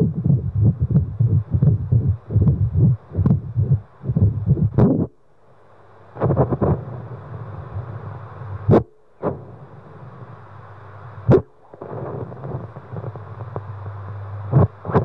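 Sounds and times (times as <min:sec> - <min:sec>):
fetal doppler rumbling hiss: 0:00.0 - 0:05.2, 0:06.1 - 0:15.0.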